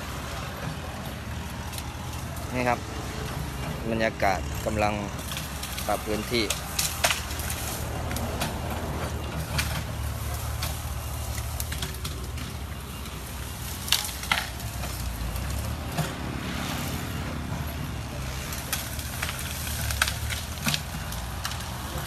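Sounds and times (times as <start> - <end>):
excavator engine running: 0.0 - 22.0
branches snapping: 5.3 - 8.9, 13.6 - 16.8, 18.3 - 22.0.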